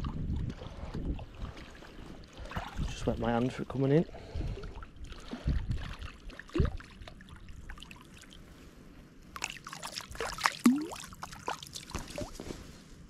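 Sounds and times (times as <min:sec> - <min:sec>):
water dripping: 0:09.4 - 0:12.2
fish splashing in water: 0:09.4 - 0:12.3.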